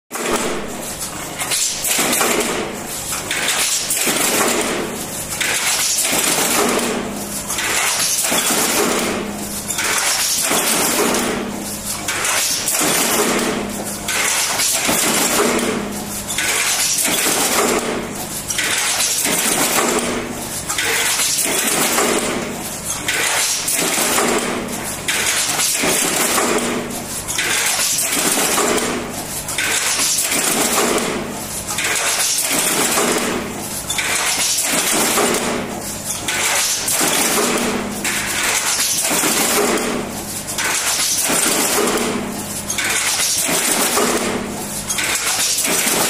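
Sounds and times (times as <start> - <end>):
power presses metallic clatter: 0.1 - 46.0.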